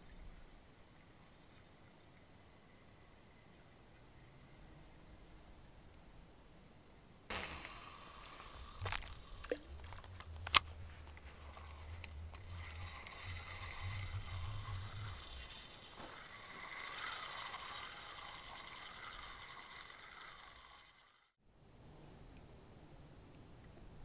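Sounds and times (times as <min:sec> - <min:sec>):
sharp clicks: 0:07.3 - 0:16.0
fishing reel whirring: 0:07.3 - 0:21.4.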